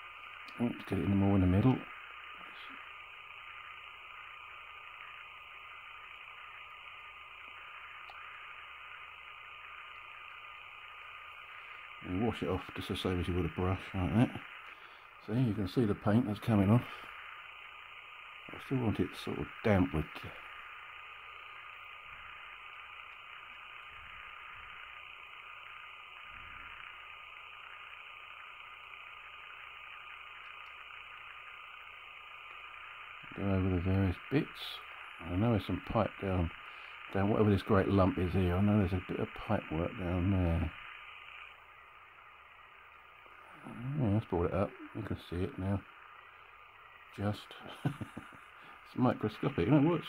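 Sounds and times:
background hiss: 0.0s - 50.0s
faint high hum: 0.0s - 50.0s.

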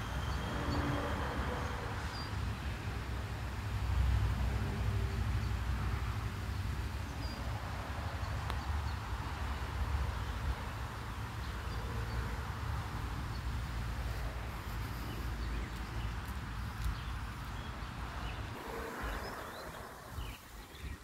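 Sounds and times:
wind on microphone: 18.0s - 21.0s.

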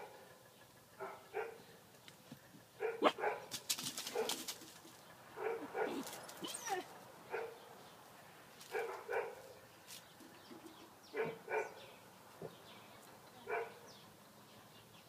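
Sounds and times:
dog barking: 1.0s - 1.6s, 2.8s - 3.5s, 4.1s - 4.4s, 5.4s - 7.6s, 8.7s - 9.5s, 11.2s - 11.8s, 13.5s - 13.8s.

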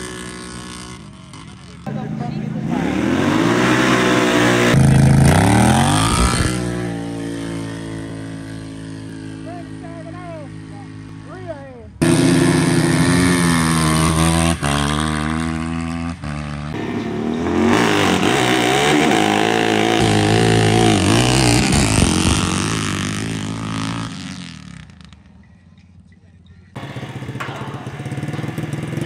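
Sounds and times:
dirt bike and atv engines revving: 0.0s - 29.0s.

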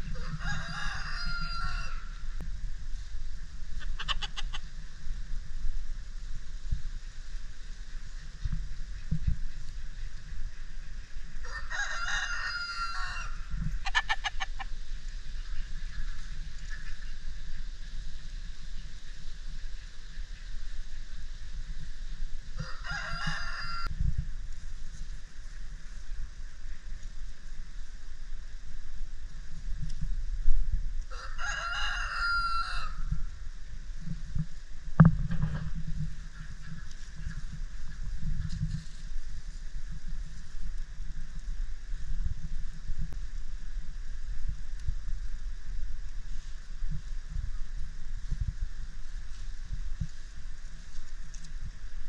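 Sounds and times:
rooster crowing: 0.1s - 2.4s, 11.4s - 14.2s, 22.6s - 23.9s, 31.1s - 33.1s
chicken clucks: 3.8s - 4.7s, 11.5s - 14.8s, 15.4s - 17.6s.

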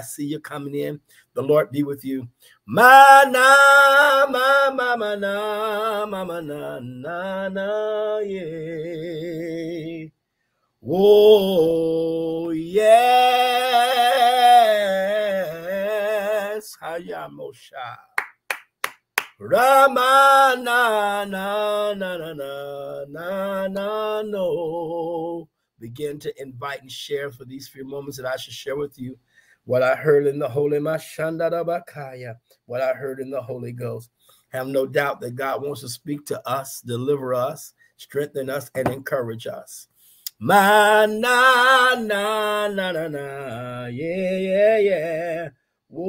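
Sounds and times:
man singing slow chant: 2.7s - 10.1s, 19.4s - 25.4s.

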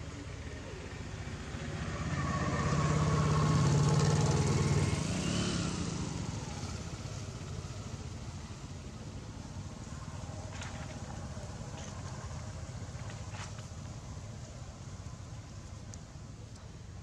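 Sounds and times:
vehicle engine hum passing: 0.0s - 17.0s.

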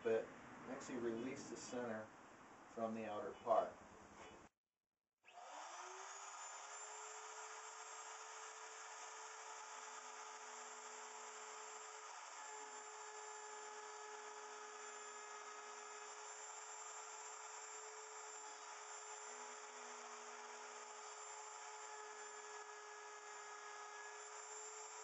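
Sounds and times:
electric wood router running: 5.2s - 25.0s.

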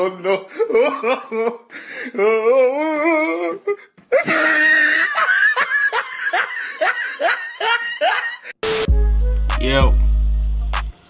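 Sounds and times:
exaggerated laughter: 4.1s - 8.6s.

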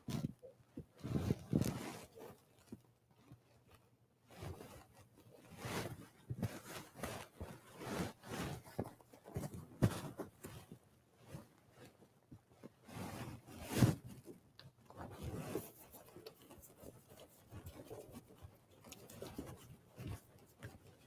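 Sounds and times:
cloth rustling and scraping: 0.0s - 21.0s.

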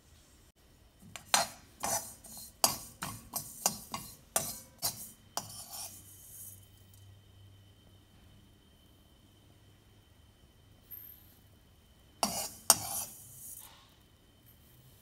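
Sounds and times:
spoon scraping metal pan: 1.1s - 6.6s, 12.2s - 13.7s.

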